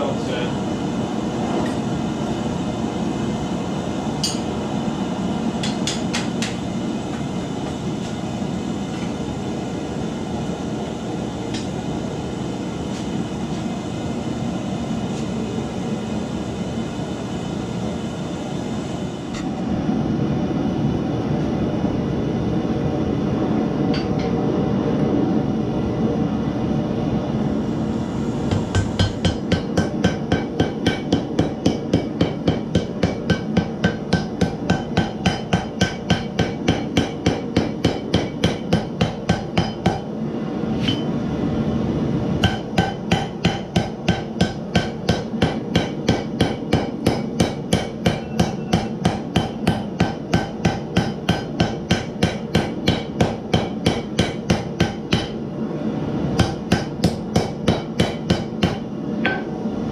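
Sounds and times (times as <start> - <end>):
hammer striking steel on anvil: 4.2 - 4.5, 5.6 - 6.6, 28.5 - 40.1, 40.8 - 41.1, 42.4 - 55.4, 56.4 - 59.6.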